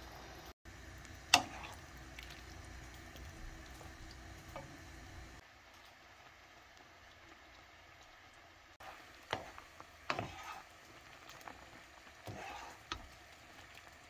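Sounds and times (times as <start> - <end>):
sauce bubbling in a pan: 0.1 - 14.0
wooden spoon scraping a pan: 8.8 - 13.2.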